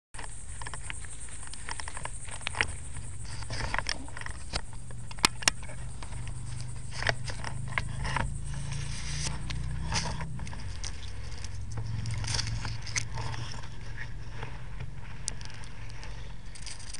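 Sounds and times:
sharp clicks: 0:00.2 - 0:13.7
camera rig rattling over sand and twigs: 0:00.2 - 0:16.9
steady low hum: 0:00.2 - 0:16.9.

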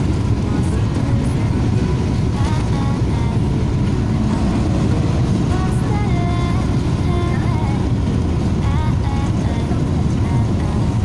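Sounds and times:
bus engine and road noise: 0:00.0 - 0:11.0.

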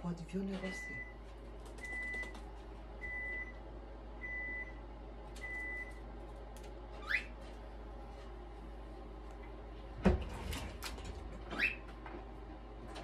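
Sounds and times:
cockatiel chirp: 0:07.0 - 0:07.3.

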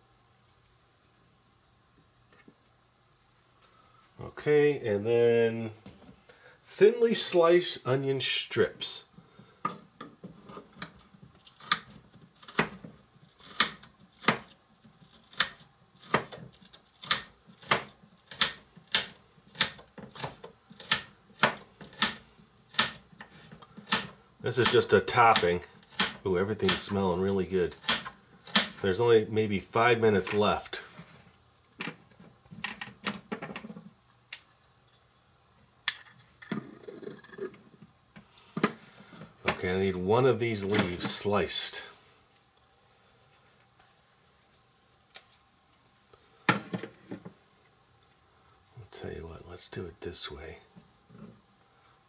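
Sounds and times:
knife slicing onion on board: 0:11.6 - 0:27.0, 0:27.7 - 0:28.8.

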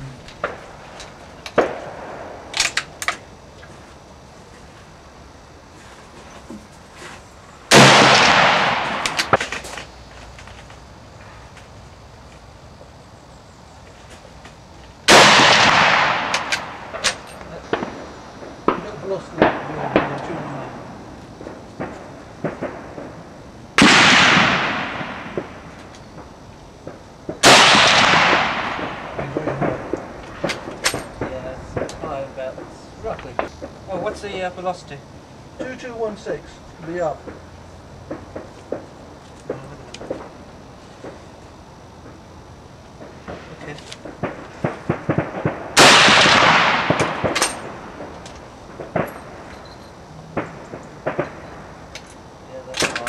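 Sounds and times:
rifle shots with rolling echo: 0:00.4 - 0:00.8, 0:01.5 - 0:03.2, 0:07.7 - 0:09.6, 0:15.0 - 0:32.7, 0:38.0 - 0:39.0, 0:43.0 - 0:49.7, 0:50.3 - 0:51.8.

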